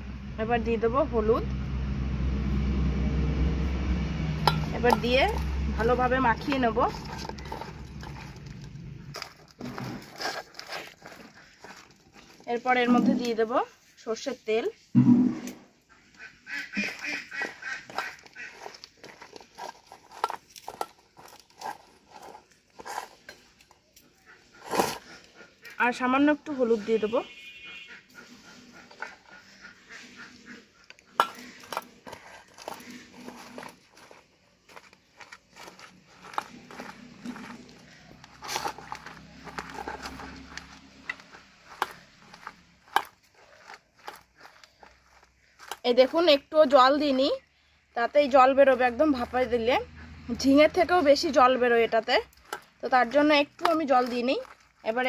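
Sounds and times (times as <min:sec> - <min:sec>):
hands squishing food paste: 0:03.8 - 0:13.9, 0:16.0 - 0:26.6, 0:27.2 - 0:55.0.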